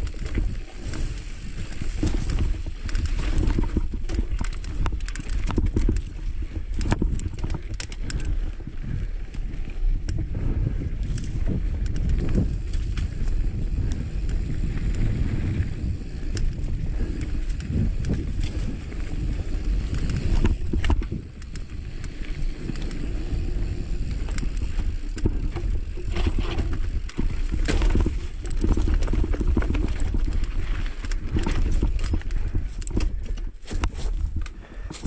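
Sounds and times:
bike rattling: 0.0s - 35.0s
wind on microphone: 0.0s - 35.0s.

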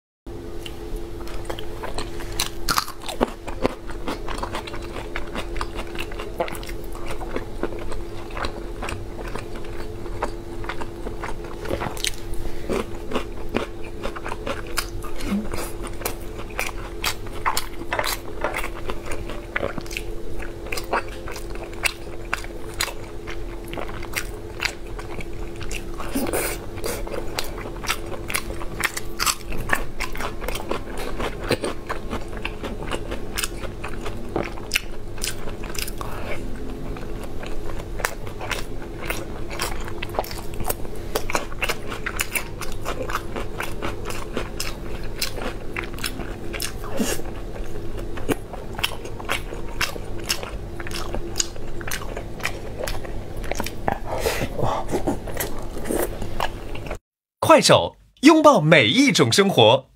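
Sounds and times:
wet chewing and mouth clicks: 0.6s - 57.0s.

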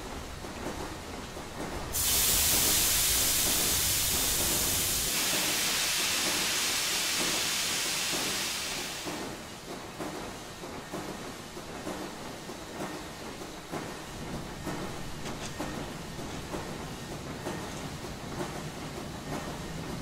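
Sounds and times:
steam hissing from pressing iron: 1.9s - 9.4s.

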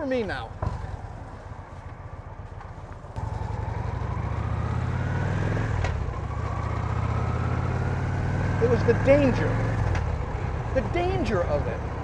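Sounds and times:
motorcycle engine accelerating: 3.2s - 11.0s.

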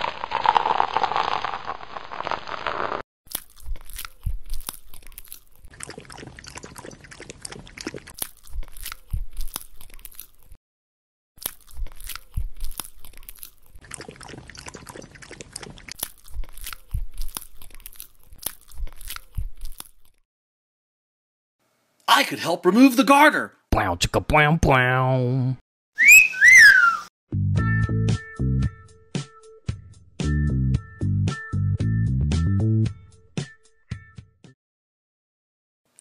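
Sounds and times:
dog licking and lapping: 3.6s - 10.2s, 11.7s - 18.0s.

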